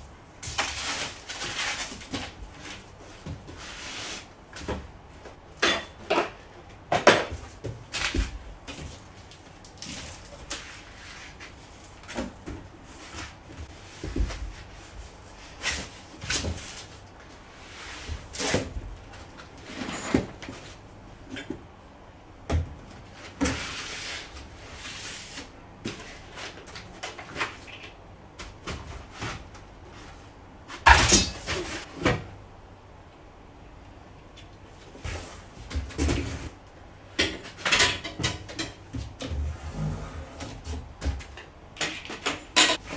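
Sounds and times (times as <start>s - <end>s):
cardboard and foam rustling: 0.4s - 4.9s, 7.0s - 20.8s.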